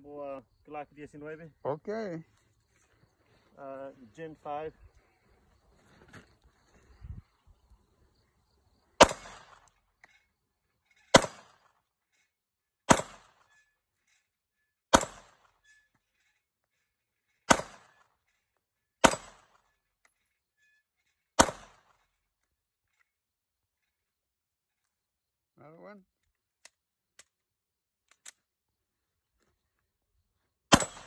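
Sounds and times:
pistol shots: 9.0s - 9.7s, 11.1s - 11.7s, 12.9s - 13.5s, 14.9s - 15.5s, 17.5s - 18.0s, 19.0s - 19.6s, 21.4s - 21.9s, 30.7s - 31.0s.

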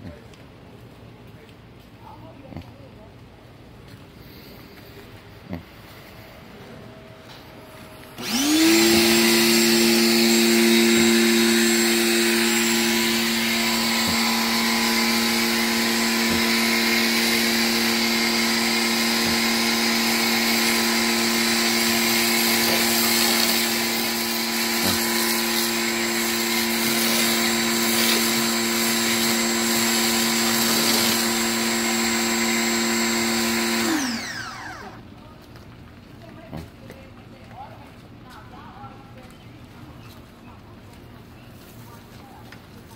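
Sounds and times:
electric pressure washer running: 7.8s - 35.0s
spray hissing through foam cannon: 8.9s - 31.6s.

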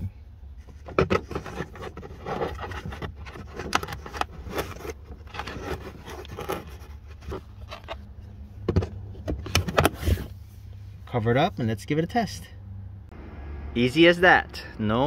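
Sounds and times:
wires rustling and scraping: 0.6s - 8.5s.

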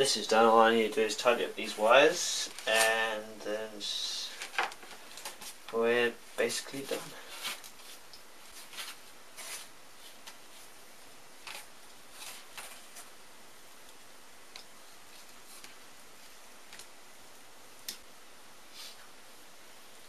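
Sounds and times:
steady low hiss: 0.0s - 20.0s
wires being handled: 1.2s - 3.1s, 4.2s - 10.8s, 11.4s - 13.2s, 13.8s - 18.1s.

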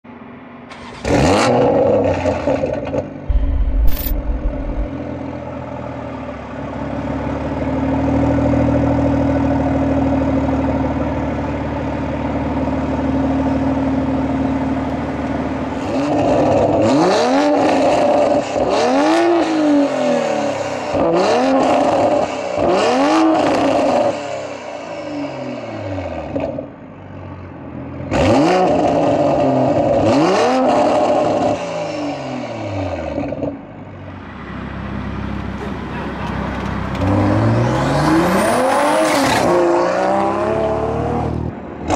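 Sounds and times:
car exhaust idling and revving: 3.0s - 15.8s.

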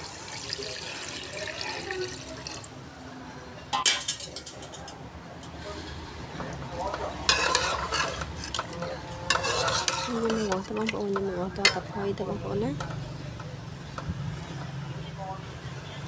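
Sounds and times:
water pouring and splashing: 0.0s - 3.0s.

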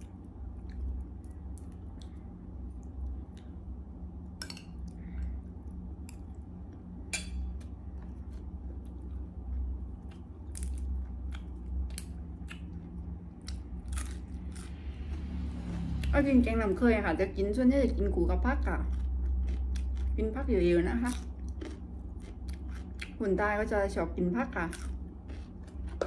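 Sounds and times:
low steady hum: 0.0s - 26.0s
person chewing: 7.4s - 15.2s, 18.9s - 20.2s, 21.1s - 23.2s, 24.7s - 26.0s.

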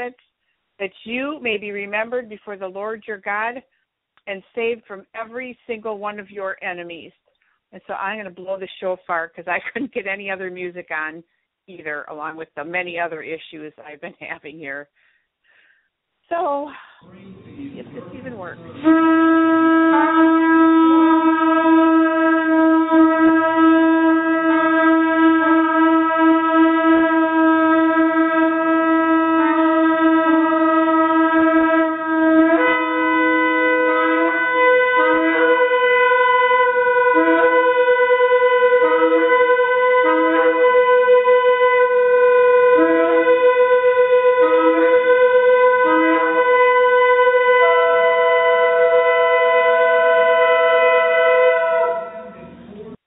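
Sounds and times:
short lower shofar blasts: 18.6s - 53.0s
shofar long held notes: 18.7s - 52.8s.

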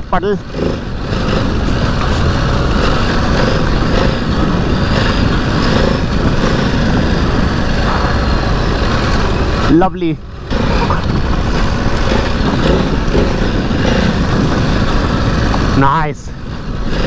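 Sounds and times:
loud rushing noise: 0.0s - 17.0s
motorcycle engine running: 0.0s - 17.0s.

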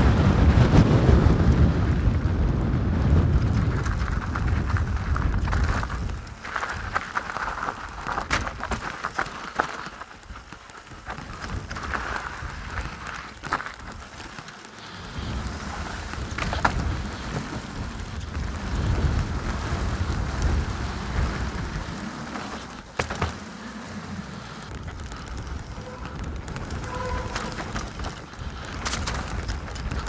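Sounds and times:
wind on microphone: 0.0s - 7.0s, 15.0s - 22.7s, 24.0s - 30.0s
tyres rumbling on trail: 0.0s - 30.0s
bike knocking and clattering: 2.5s - 30.0s.

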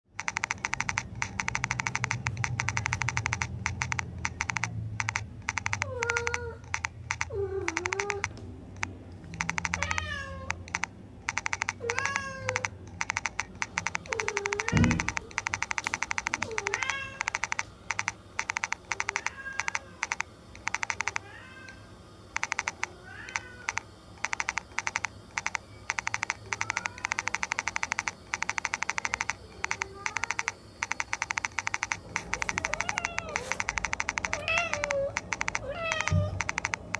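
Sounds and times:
rapid dry clicking: 0.1s - 36.9s
cat meowing: 9.8s - 10.6s, 16.4s - 17.3s, 32.6s - 33.5s, 34.4s - 36.4s.

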